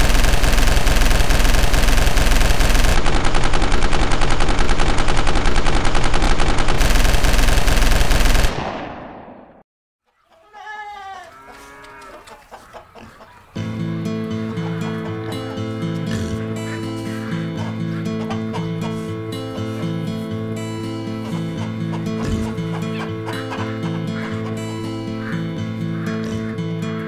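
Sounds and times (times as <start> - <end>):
automatic gunfire: 0.0 - 9.6
person crying out: 10.4 - 11.5.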